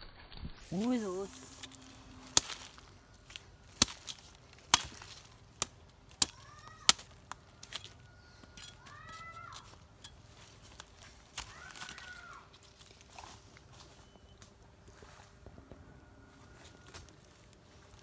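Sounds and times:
blade chopping bamboo: 0:00.8 - 0:11.5.

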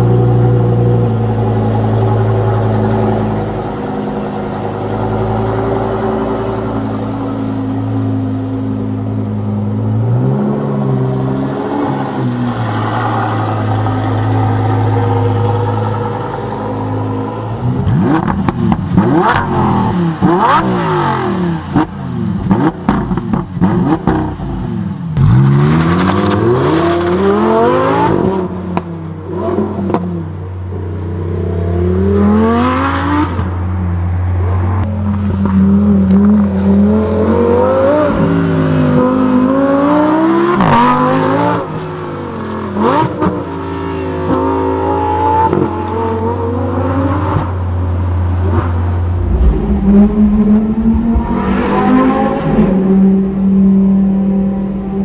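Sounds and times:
car engine revving hard: 0:10.1 - 0:24.6
exhaust cracks: 0:48.8 - 0:53.4.

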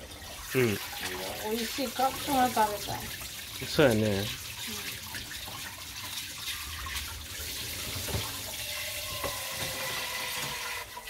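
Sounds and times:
tap running into metal sink: 0:07.8 - 0:10.9.

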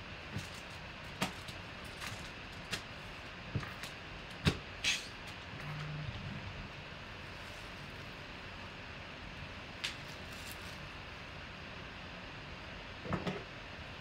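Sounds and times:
low hum: 0:05.2 - 0:09.8.

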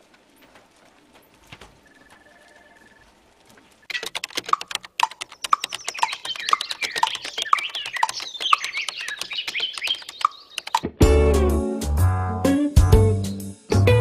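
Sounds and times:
birds chirping: 0:00.2 - 0:10.9
clock ticking: 0:03.9 - 0:10.9
rapid keyboard typing: 0:03.9 - 0:10.9.

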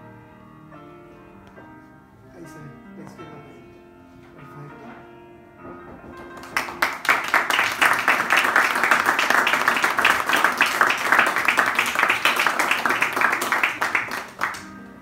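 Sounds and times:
quiet background music: 0:00.0 - 0:15.0
audience clapping: 0:06.2 - 0:14.8.

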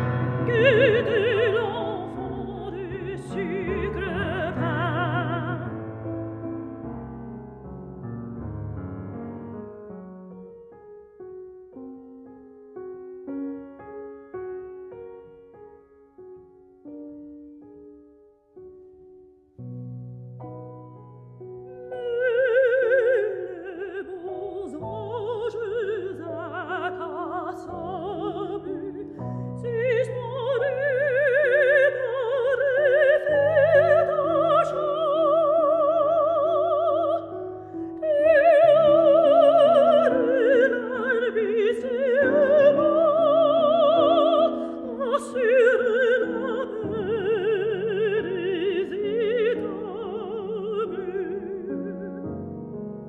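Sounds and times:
soprano singing: 0:00.0 - 0:07.6, 0:21.3 - 0:53.0
piano chords: 0:00.0 - 0:53.0.

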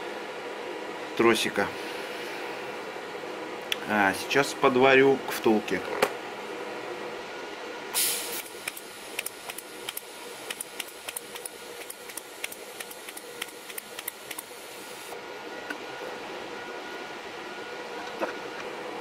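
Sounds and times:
welding arc striking: 0:08.0 - 0:15.1
welding arc hissing and crackling: 0:08.0 - 0:15.2.

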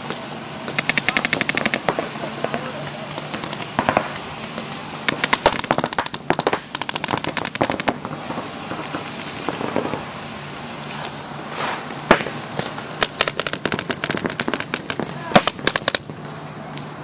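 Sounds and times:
paintball markers firing pops: 0:00.1 - 0:08.1, 0:12.1 - 0:16.2.

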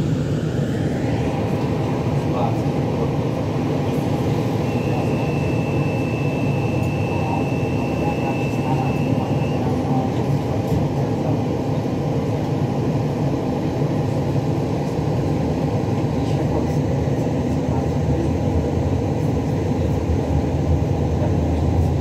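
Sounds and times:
tram wheels rumbling: 0:06.8 - 0:22.0.

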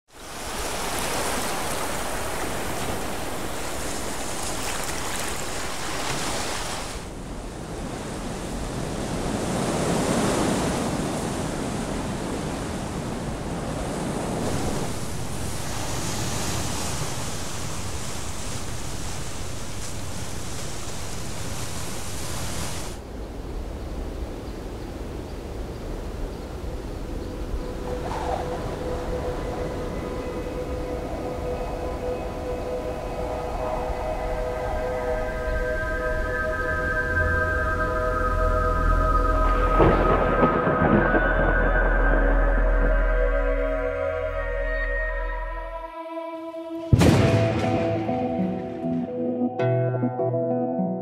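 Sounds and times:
waves breaking on a beach: 0:00.1 - 0:23.1.

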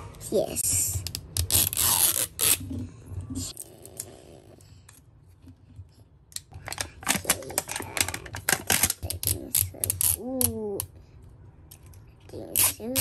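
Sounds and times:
plastic wrapper crinkling: 0:06.6 - 0:09.2.

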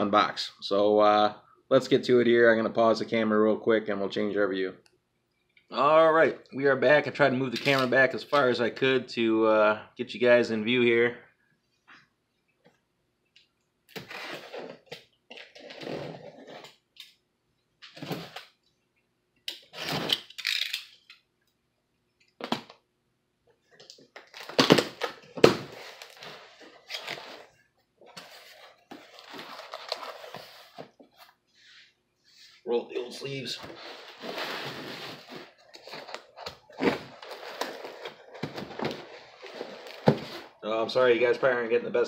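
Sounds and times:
cardboard scraping and rustling: 0:24.4 - 0:31.4, 0:33.5 - 0:40.6
box flaps rustling: 0:33.6 - 0:40.6.

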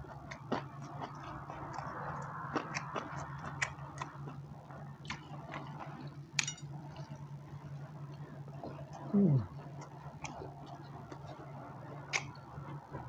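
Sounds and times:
person chewing: 0:00.0 - 0:06.2, 0:12.0 - 0:12.8
steady low hum: 0:00.0 - 0:13.0.

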